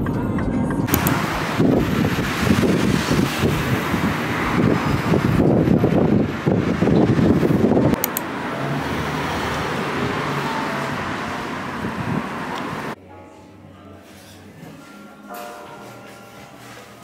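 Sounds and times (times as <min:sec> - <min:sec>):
city street traffic: 0:00.0 - 0:13.0
wind buffeting microphone: 0:00.5 - 0:13.0
faint music: 0:13.0 - 0:17.0.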